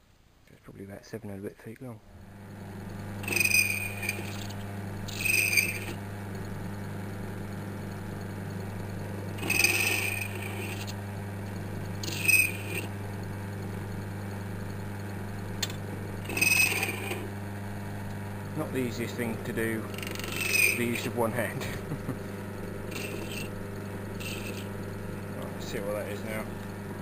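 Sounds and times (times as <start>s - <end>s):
lathe motor hum: 2.1s - 27.0s
cutting tool squealing: 3.2s - 6.0s, 9.4s - 11.0s, 12.0s - 12.9s, 16.2s - 17.3s, 19.9s - 21.0s, 22.9s - 23.6s, 24.2s - 24.7s.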